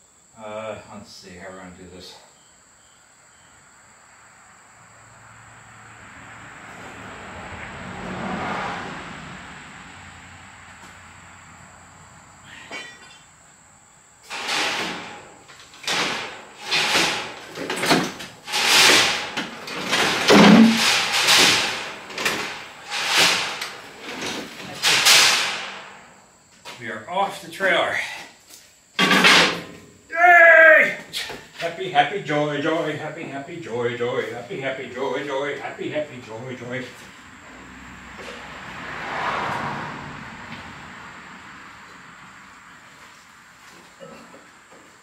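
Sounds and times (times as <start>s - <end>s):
heavy metal frame scraping: 14.2s - 26.2s.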